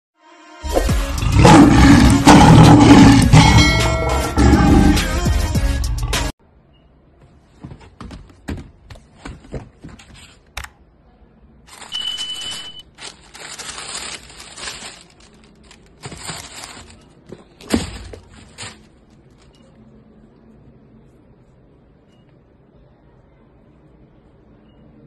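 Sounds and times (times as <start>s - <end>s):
tissue paper crinkling: 11.7s - 19.5s.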